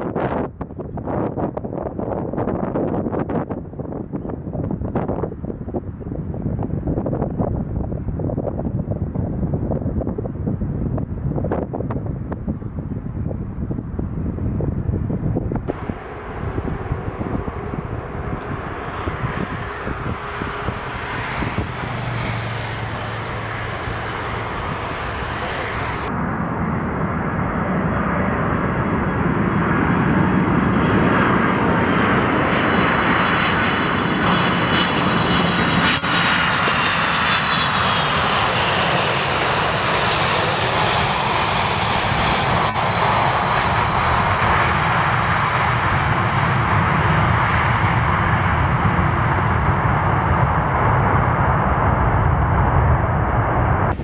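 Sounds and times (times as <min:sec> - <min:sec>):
jet engine roar: 0:00.0 - 0:54.0
high whine falling in pitch: 0:15.6 - 0:32.5, 0:50.7 - 0:54.0.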